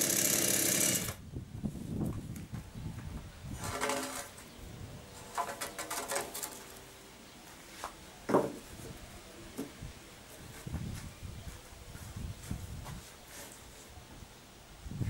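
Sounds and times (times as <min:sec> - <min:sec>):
timber scraping and clattering: 0:03.5 - 0:06.9
wooden beam knocking down: 0:08.3 - 0:08.6.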